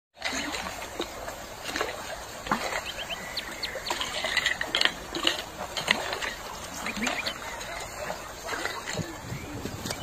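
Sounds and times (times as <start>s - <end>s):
stream running over pebbles: 0.2s - 10.0s
bird chirping: 2.7s - 4.4s, 6.7s - 8.0s
stones clacking in water: 3.9s - 7.2s.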